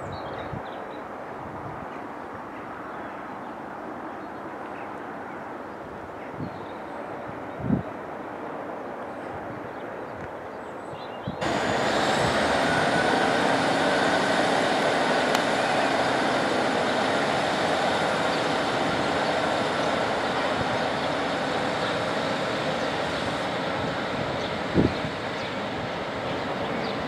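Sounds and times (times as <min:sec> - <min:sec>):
diesel train running: 0:11.4 - 0:27.0.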